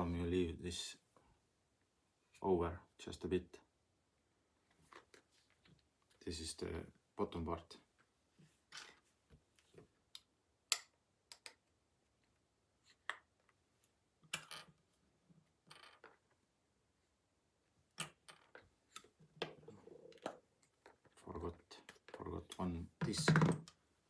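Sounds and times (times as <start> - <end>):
plastic parts clicking and knocking: 10.1 - 11.8, 14.2 - 14.8, 21.8 - 23.8.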